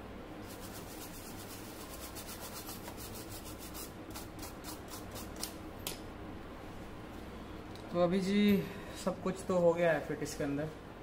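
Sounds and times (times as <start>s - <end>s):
brush scrubbing circuit board: 0.5s - 5.3s.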